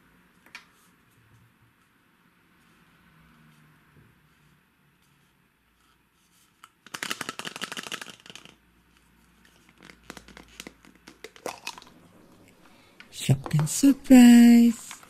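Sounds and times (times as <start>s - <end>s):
plastic cups clicking: 6.9s - 8.6s, 9.7s - 12.0s.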